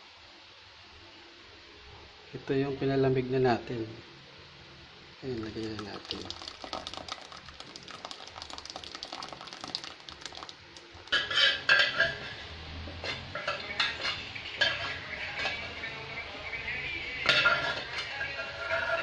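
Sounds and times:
metal spoon scraping a pan: 11.1 - 16.0, 17.2 - 19.0.

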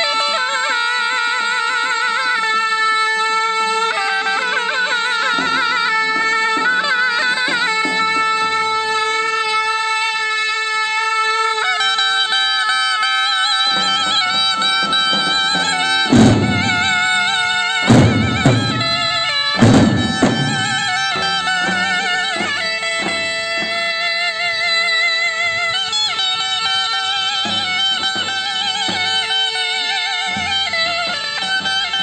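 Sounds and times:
shrill reed pipes playing folk melody: 0.0 - 32.0
bass drum strikes: 15.0 - 17.2, 17.8 - 21.3.

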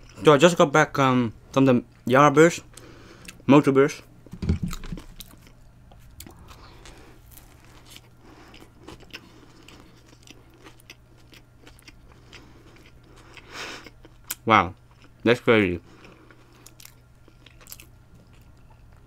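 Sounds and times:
thump on wooden board: 4.3 - 5.0
chewing with crunches: 4.7 - 19.0.

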